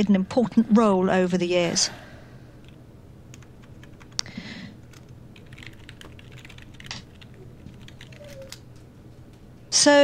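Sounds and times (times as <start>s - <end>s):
computer keyboard typing: 2.6s - 4.3s, 4.9s - 8.6s.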